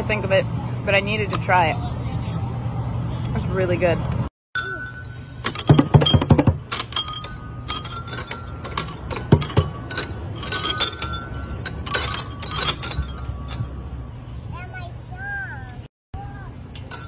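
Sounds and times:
metal chime bars ringing: 4.6s - 14.0s, 16.8s - 17.0s.

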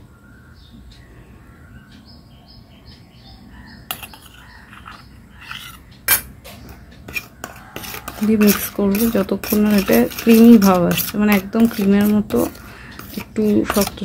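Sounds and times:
small bird chirping: 0.2s - 7.8s
spoons clinking against steel bowls: 3.9s - 14.0s.

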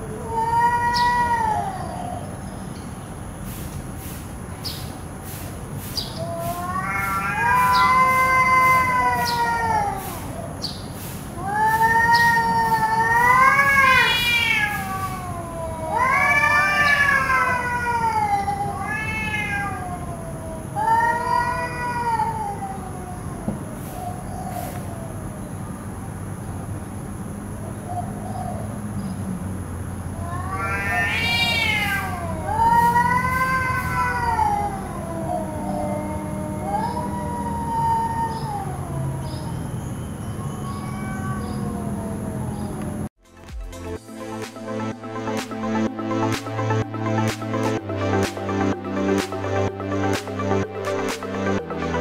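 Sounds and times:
cats yowling: 0.0s - 2.6s, 6.1s - 10.7s, 11.3s - 25.5s, 30.1s - 43.1s.

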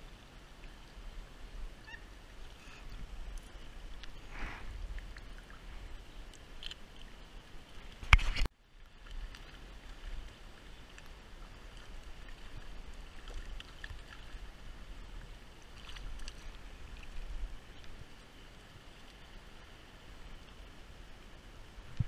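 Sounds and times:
stream running over stones: 0.0s - 22.0s.

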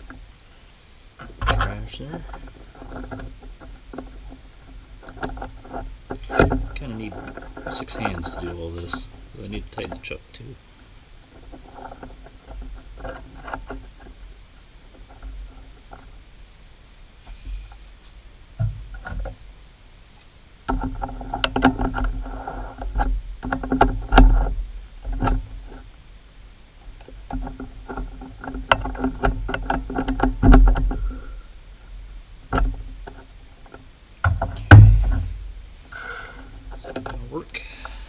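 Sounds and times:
loud metal clunk: 34.3s - 35.4s.

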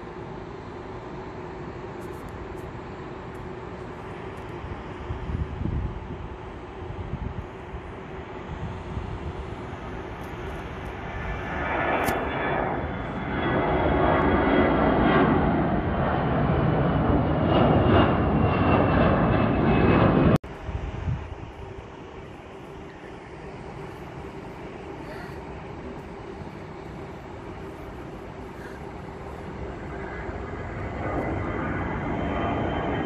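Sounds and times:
jet engines at takeoff thrust: 0.0s - 33.0s
faint high whine: 20.5s - 33.0s.

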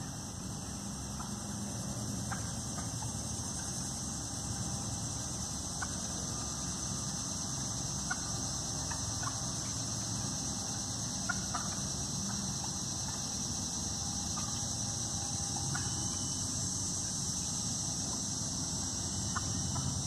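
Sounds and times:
steady high-pitched hiss: 0.0s - 20.0s
turkeys clucking: 1.1s - 3.9s, 5.1s - 14.8s, 15.6s - 16.0s, 18.0s - 20.0s.

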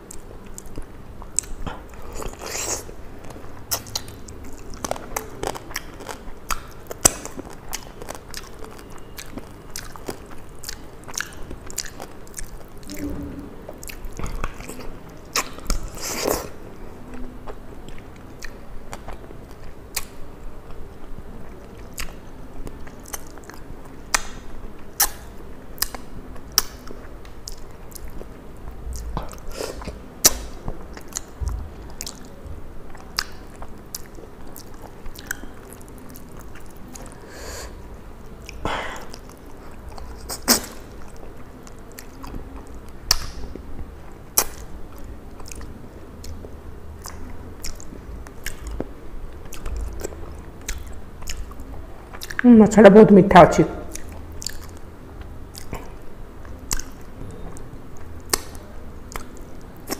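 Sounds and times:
biting chewing and crunching: 0.0s - 13.1s, 38.2s - 52.4s, 53.9s - 59.9s
wet mouth clicks and smacks: 25.0s - 26.0s, 43.1s - 43.6s, 45.4s - 48.9s, 49.5s - 52.4s, 53.9s - 54.8s, 56.5s - 57.1s, 58.3s - 59.9s.

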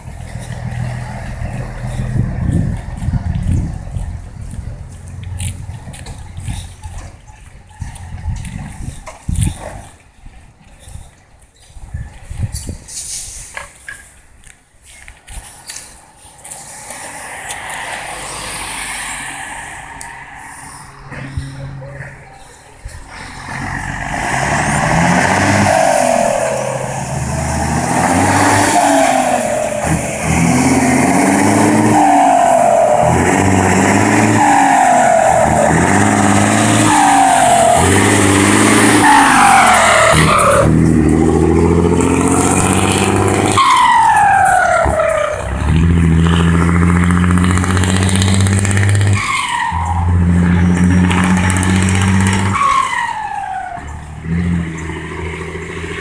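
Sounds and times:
diesel truck engine pulling hard: 0.0s - 9.9s, 17.0s - 56.0s
exhaust crackles: 15.4s - 56.0s.

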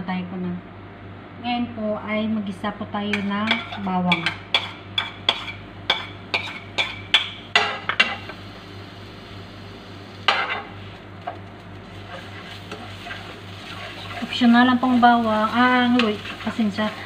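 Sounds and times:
oil sizzling: 4.5s - 17.0s.

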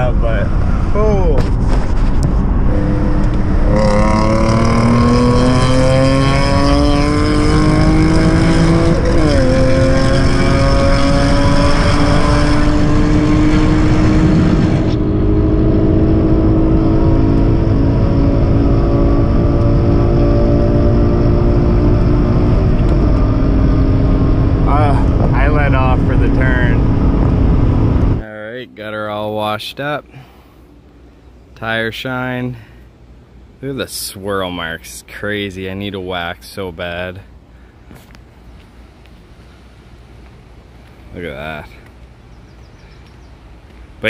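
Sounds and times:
car engine accelerating hard: 2.2s - 28.2s.

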